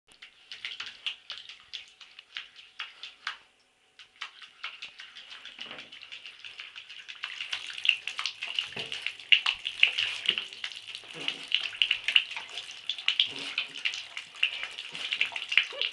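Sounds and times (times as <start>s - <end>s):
dog claws scratching bathtub: 4.0s - 15.9s.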